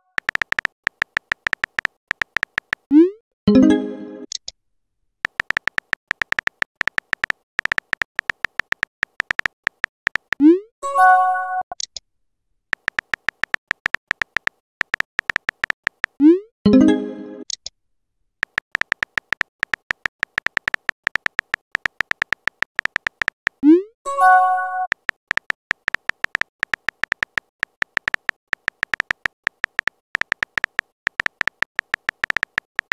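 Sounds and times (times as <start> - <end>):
keyboard keypress ticks: 0.0 - 2.9, 5.2 - 10.5, 12.8 - 16.2, 18.4 - 23.6, 24.9 - 32.9
rising pop and chime: 3.5 - 4.3.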